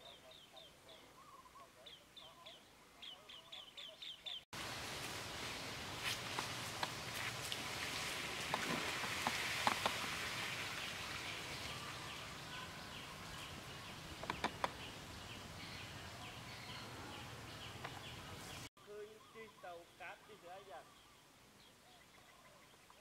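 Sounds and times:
steady hiss: 0:04.6 - 0:16.5
sharp clicks: 0:14.2 - 0:14.8.

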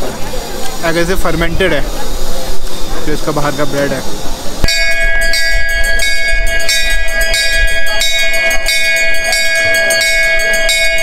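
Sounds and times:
bell struck rapidly: 0:04.6 - 0:11.0.

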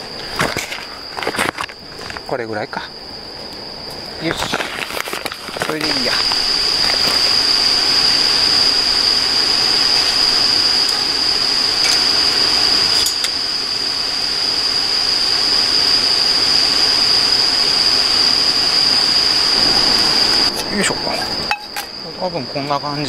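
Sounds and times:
crickets chirping: 0:00.0 - 0:23.0
air rushing through blowpipe: 0:04.8 - 0:21.8.

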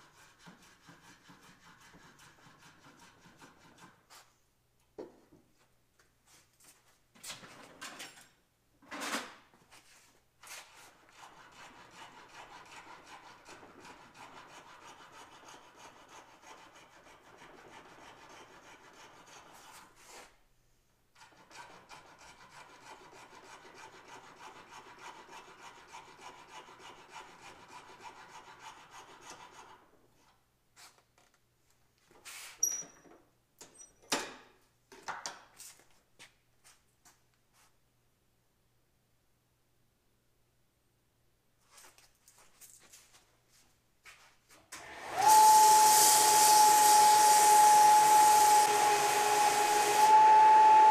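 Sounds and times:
hand file scraping: 0:00.0 - 0:04.3, 0:10.4 - 0:20.4, 0:21.2 - 0:29.9.

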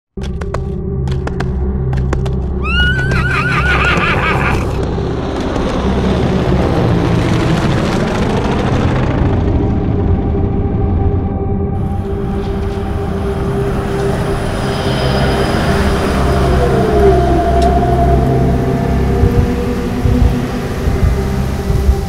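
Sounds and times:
horse whinnying: 0:02.6 - 0:04.8
steady low drone: 0:04.6 - 0:22.0
rushing noise: 0:11.8 - 0:22.0.

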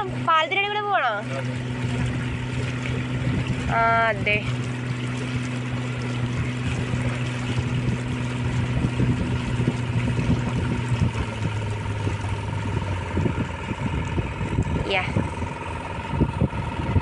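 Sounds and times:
motorboat engine running: 0:00.0 - 0:17.0
water rushing past hull: 0:00.0 - 0:17.0.

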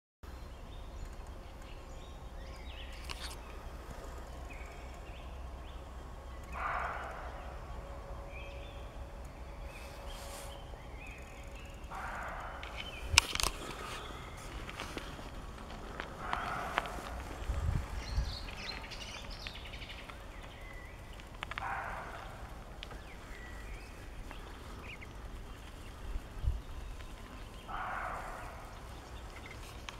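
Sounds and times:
low steady rumble: 0:00.3 - 0:29.9
small birds chirping: 0:00.3 - 0:29.9
deer barking: 0:06.4 - 0:08.9, 0:11.8 - 0:17.5, 0:21.4 - 0:22.6, 0:27.7 - 0:28.8
dull low thumps: 0:14.1 - 0:19.6.

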